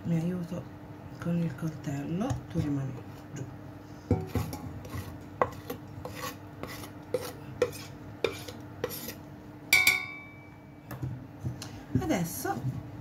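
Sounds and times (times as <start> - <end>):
knife scraping on tabletop: 4.2 - 9.2
metal clang ringing: 9.7 - 10.8.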